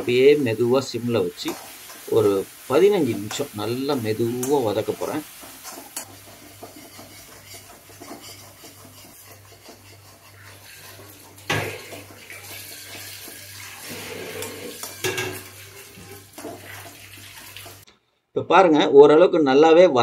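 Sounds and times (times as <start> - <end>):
metal spatula scraping a pan: 4.1 - 17.8.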